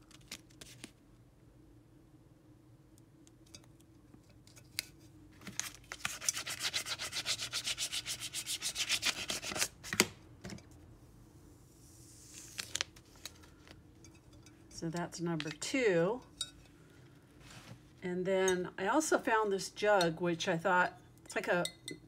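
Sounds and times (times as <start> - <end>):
plastic scraper rubbing on bowl: 6.1 - 9.7.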